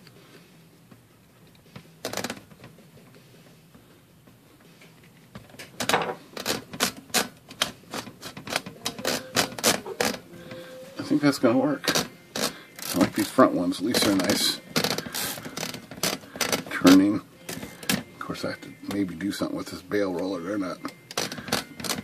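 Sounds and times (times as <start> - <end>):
typewriter clatter: 21.1 - 22.0.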